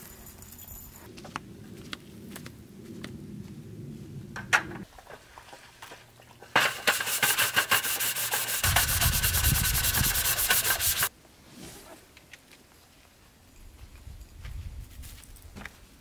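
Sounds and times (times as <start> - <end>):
scrub brush scrubbing metal table: 6.5 - 11.1.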